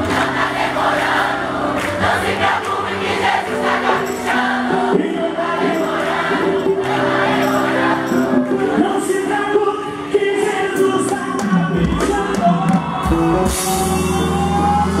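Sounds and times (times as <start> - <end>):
gospel band music: 0.0 - 15.0
many voices singing: 0.0 - 15.0.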